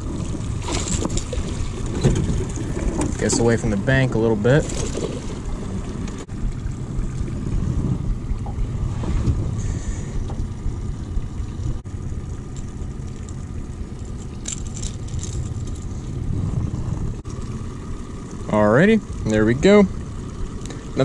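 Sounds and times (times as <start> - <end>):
outboard motor rumbling: 0.0 - 21.0
light clicks and rustles: 12.5 - 16.2.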